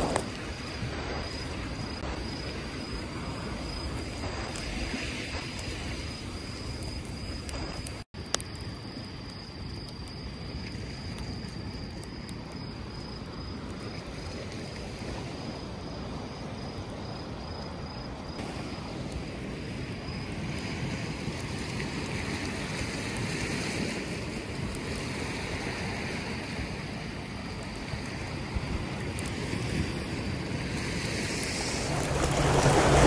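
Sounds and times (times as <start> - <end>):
waves washing on shore: 0.0 - 6.7, 18.4 - 33.0
insect chirping: 0.0 - 22.2
campfire crackling: 0.0 - 33.0
wind: 0.0 - 33.0.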